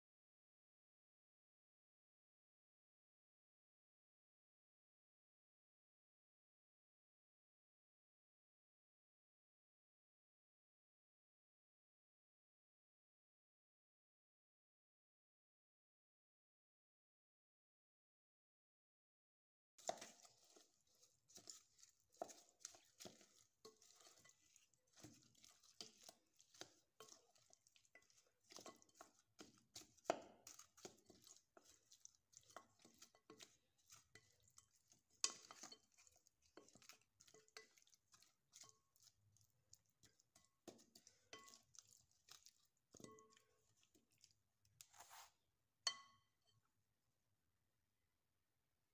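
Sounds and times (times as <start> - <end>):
wet squishing of meat: 19.8 - 45.3
wooden spatula clicking on glass: 40.1 - 42.4.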